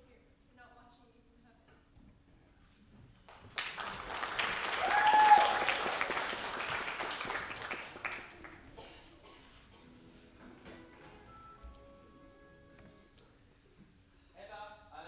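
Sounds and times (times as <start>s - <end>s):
audience applauding: 3.3s - 8.8s
person cheering: 4.7s - 6.2s.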